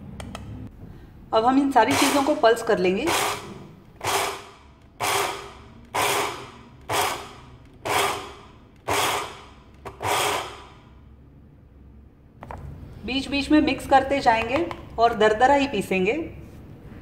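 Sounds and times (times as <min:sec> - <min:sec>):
mixer grinder whirring: 0:01.8 - 0:02.4, 0:03.0 - 0:11.0.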